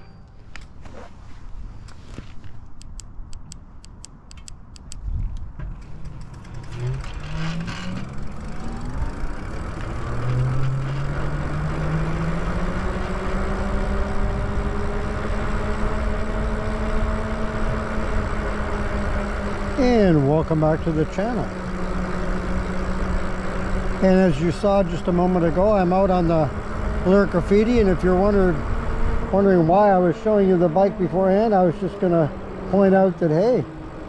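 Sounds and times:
wind and road noise: 0.0 - 34.0
fast light ticks: 2.7 - 6.3
electric motor whining: 6.0 - 34.0.

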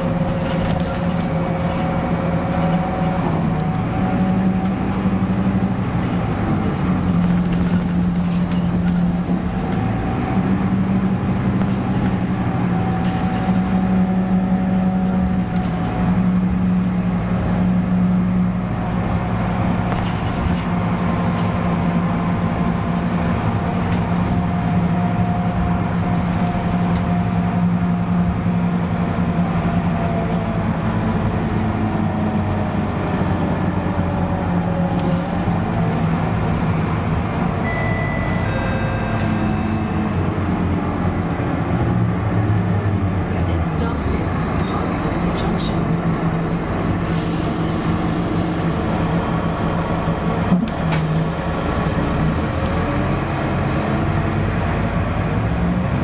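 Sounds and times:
bus diesel engine running: 0.0 - 56.0
road and tyre noise: 0.0 - 56.0
short high electronic tones: 37.6 - 40.0.

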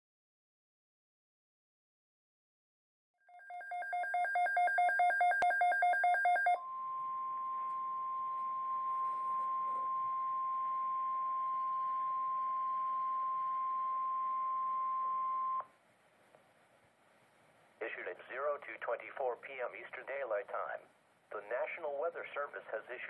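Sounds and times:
steady alarm tone: 3.3 - 15.7
radio hiss: 17.8 - 23.0.

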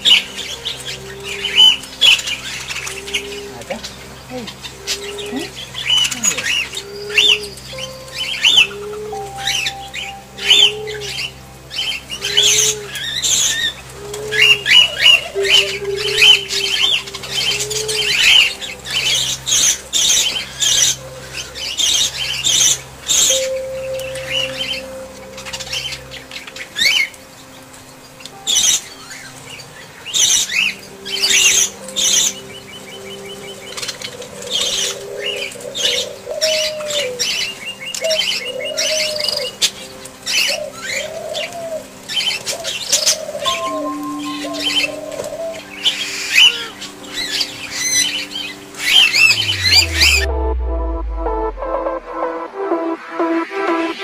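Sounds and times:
high bird chirps: 48.8 - 51.6.

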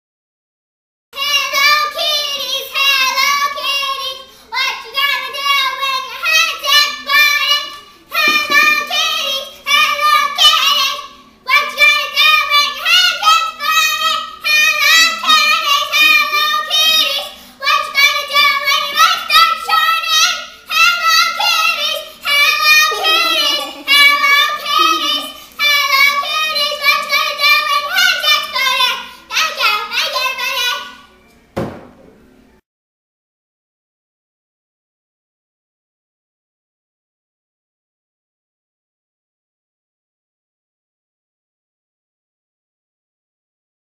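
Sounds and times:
girl singing unaccompanied: 1.2 - 31.1.

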